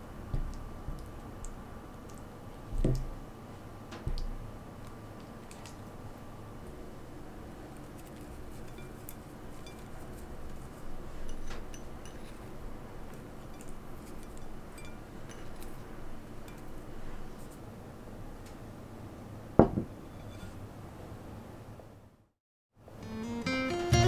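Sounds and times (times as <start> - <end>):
steady low hum: 0.0 - 22.3
ceramic plate and utensils clinking: 8.5 - 9.9
knock: 19.6 - 19.9.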